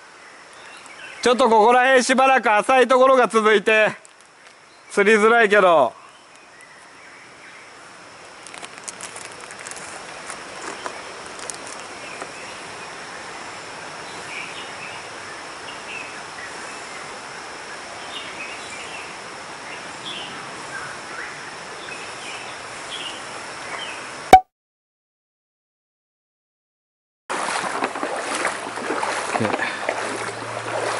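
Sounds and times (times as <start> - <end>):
high insect tone: 0.2 - 24.1
flowing water rushing: 27.3 - 30.9.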